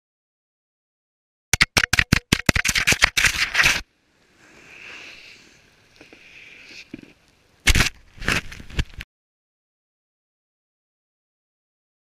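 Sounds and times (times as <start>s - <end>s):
scraping hiss in snow: 3.3s - 7.3s.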